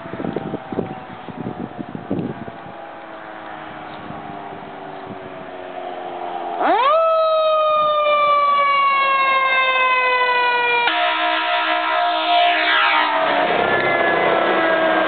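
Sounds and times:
fire engine siren: 0:00.0 - 0:15.0
air horn blasts: 0:10.7 - 0:15.0.

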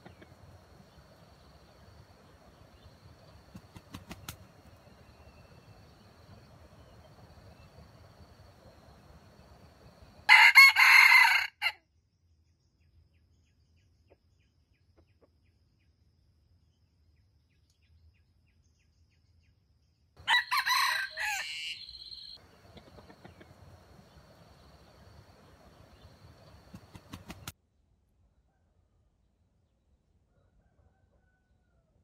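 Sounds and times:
rooster crowing: 0:09.9 - 0:11.8, 0:20.2 - 0:27.4.

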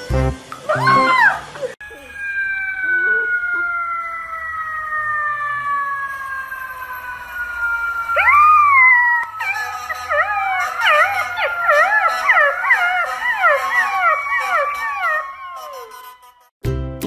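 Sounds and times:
siren wail: 0:00.6 - 0:16.5
puppy howling: 0:00.7 - 0:16.3.

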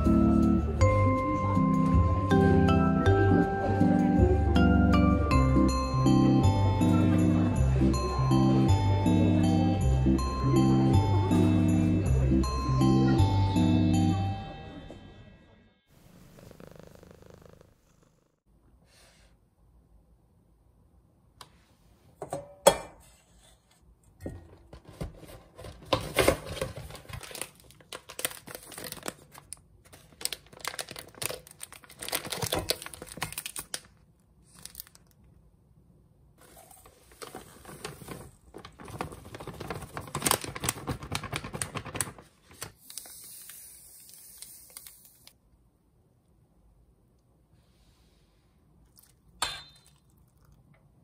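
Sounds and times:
crinkling and rustling: 0:24.5 - 0:35.3, 0:36.4 - 0:43.1.

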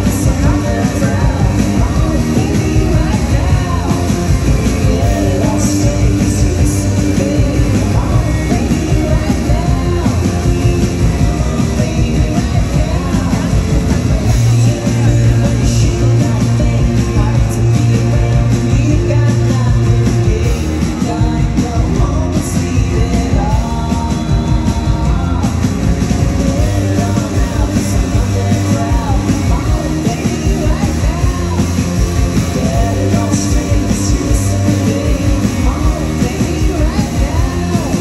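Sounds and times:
bass guitar: 0:00.0 - 0:38.0
drums: 0:00.0 - 0:38.0
electric guitars: 0:00.0 - 0:38.0
man singing: 0:00.0 - 0:38.0.

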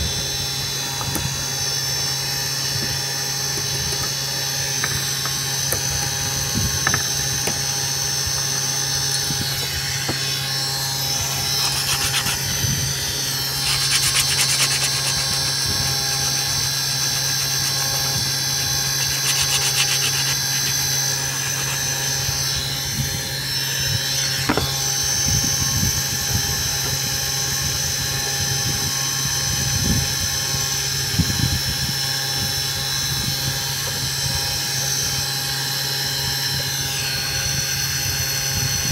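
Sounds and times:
router machine whine: 0:00.0 - 0:38.9
router cutting rasp: 0:00.4 - 0:25.6.

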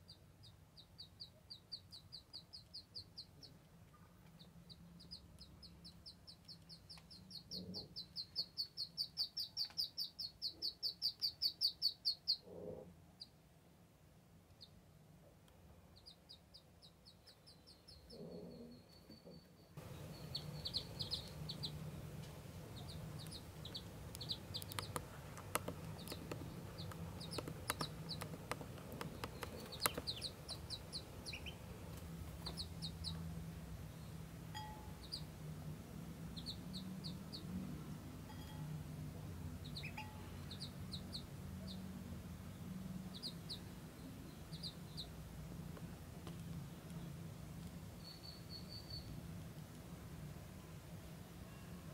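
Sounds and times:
ducklings peeping: 0:00.0 - 0:03.7, 0:04.3 - 0:12.6, 0:15.9 - 0:34.2, 0:34.9 - 0:35.4, 0:36.3 - 0:37.6, 0:39.6 - 0:42.0, 0:43.0 - 0:45.2, 0:48.0 - 0:49.2
steady low hum: 0:19.8 - 0:51.9
faint clicks: 0:23.2 - 0:30.6.

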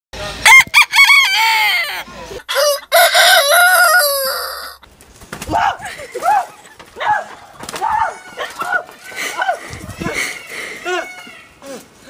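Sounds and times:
rooster crowing: 0:00.4 - 0:04.8.

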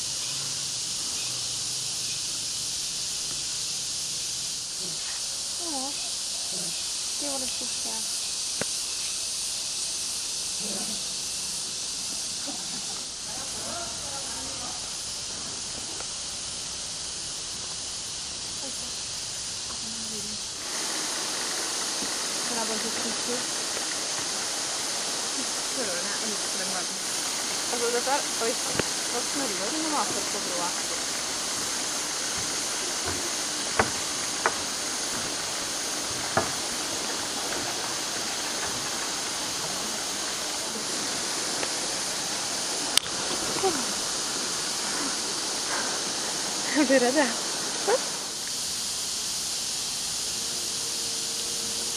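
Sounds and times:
high-pitched forest hiss: 0:00.0 - 0:51.9
stream rushing among rocks: 0:20.6 - 0:50.4.

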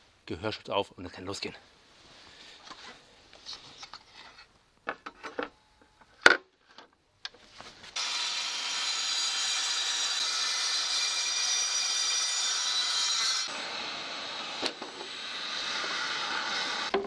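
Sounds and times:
plunge saw cutting wood: 0:08.0 - 0:17.0.

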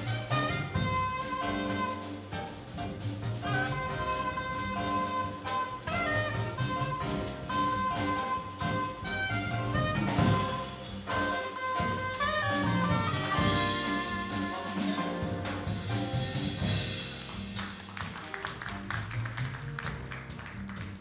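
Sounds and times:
trombone: 0:00.0 - 0:17.7
double bass: 0:00.0 - 0:21.0
drums: 0:00.0 - 0:21.0
piano: 0:00.0 - 0:21.0.

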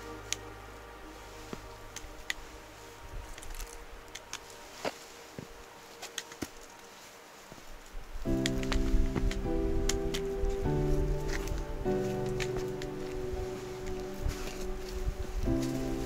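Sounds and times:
trekking poles tapping on rock: 0:03.3 - 0:06.6, 0:08.3 - 0:10.6, 0:11.2 - 0:13.2.

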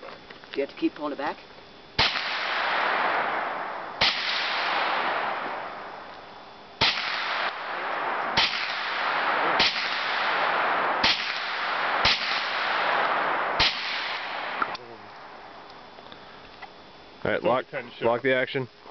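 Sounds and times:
gunshots with long echo: 0:02.0 - 0:16.0.

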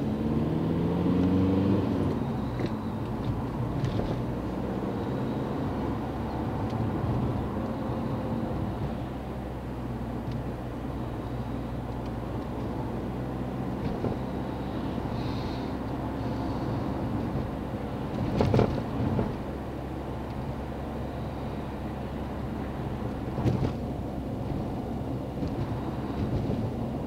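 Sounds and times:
engine and road rumble: 0:00.0 - 0:27.0.

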